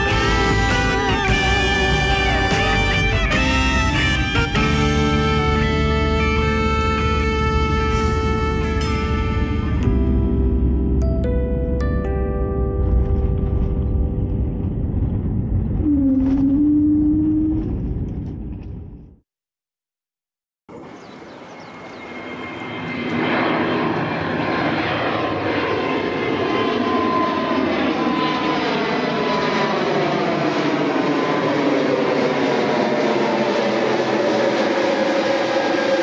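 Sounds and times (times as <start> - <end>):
jet airliner climbing overhead: 0.0 - 11.7, 12.6 - 19.1, 20.7 - 36.0
jet engine rumble in cabin: 12.7 - 19.1.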